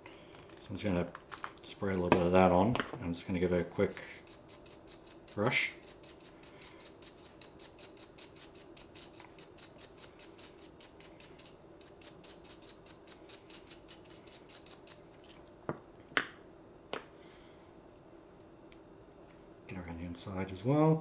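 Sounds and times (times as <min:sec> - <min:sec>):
toothbrush scrubbing plastic: 0:03.8 - 0:15.0.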